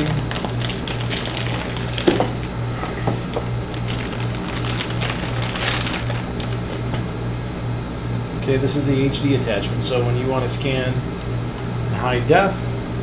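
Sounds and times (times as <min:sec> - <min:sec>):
plastic bag crinkling: 0:00.0 - 0:07.0
steady low hum: 0:00.0 - 0:13.0.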